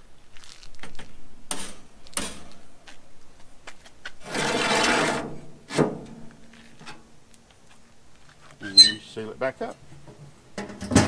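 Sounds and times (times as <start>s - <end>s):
metal grate clattering and scraping: 1.5s - 2.6s, 4.2s - 6.2s, 10.6s - 11.0s.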